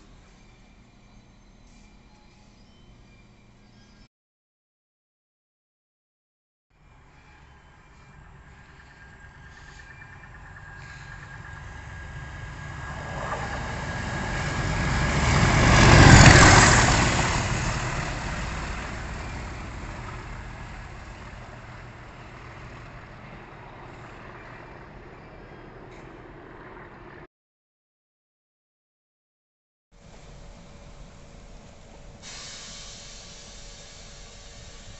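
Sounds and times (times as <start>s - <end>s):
diesel locomotive passing: 0.0s - 4.0s, 6.8s - 27.3s, 30.0s - 34.9s.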